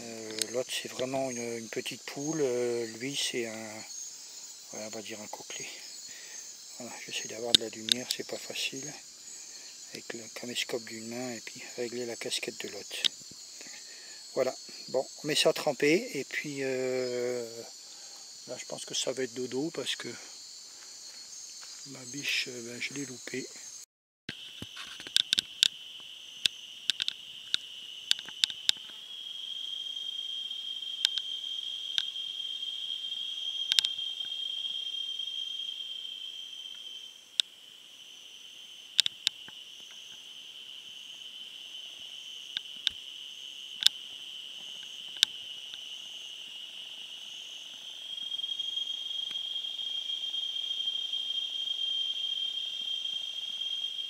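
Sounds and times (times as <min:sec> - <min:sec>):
high pulsing insect: 0:00.0 - 0:54.0
insects chorus: 0:00.0 - 0:54.0
sharp clicks: 0:26.4 - 0:28.9.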